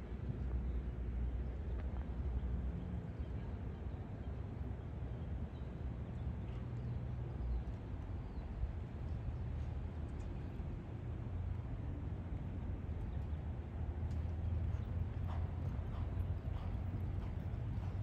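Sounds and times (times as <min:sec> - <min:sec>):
low steady rumbling: 0:10.6 - 0:18.0.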